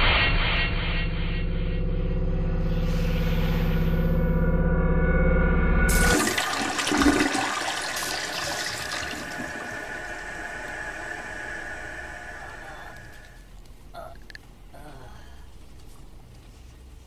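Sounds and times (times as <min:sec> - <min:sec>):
low pitched drone: 0:00.0 - 0:06.3, 0:08.9 - 0:15.5
toilet flushing: 0:05.9 - 0:13.5.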